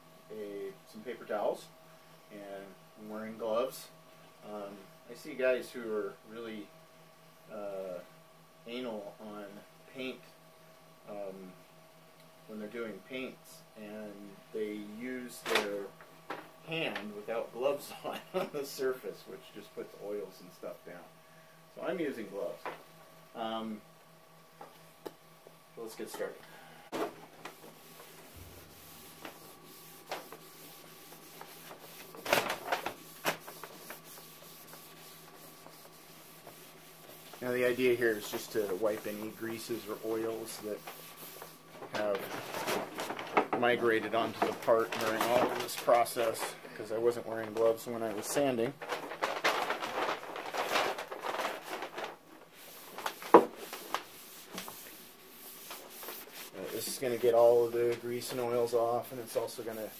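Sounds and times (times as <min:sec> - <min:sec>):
faint steady hum: 0:00.0 - 0:59.9
paper towel scuffing a panel: 0:27.0 - 0:43.3, 0:49.3 - 0:59.9.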